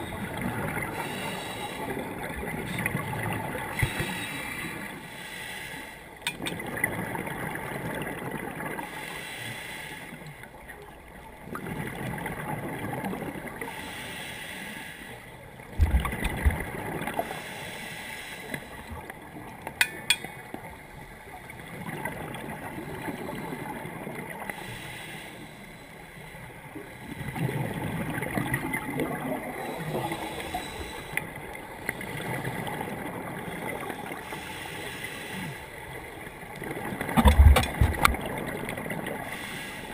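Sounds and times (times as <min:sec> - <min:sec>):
regulator inhalations: 0:03.8 - 0:06.0
bubbly regulator exhalations: 0:37.1 - 0:38.3.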